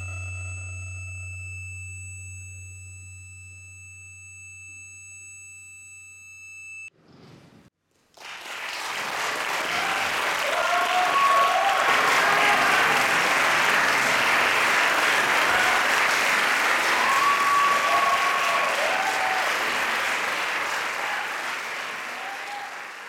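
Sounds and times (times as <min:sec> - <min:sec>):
audience applauding: 0:08.1 - 0:23.0
audience calls: 0:08.3 - 0:23.0.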